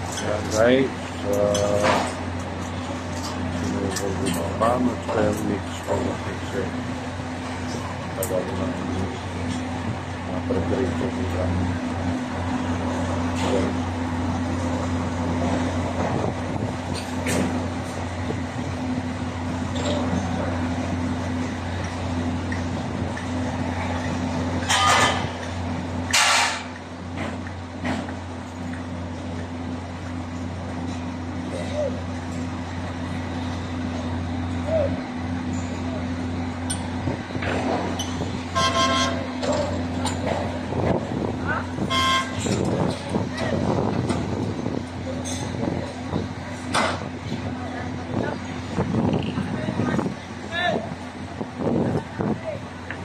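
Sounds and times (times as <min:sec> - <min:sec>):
diesel machinery humming: 0:00.0 - 0:53.0
truck horn: 0:38.5 - 0:39.4, 0:41.8 - 0:42.6.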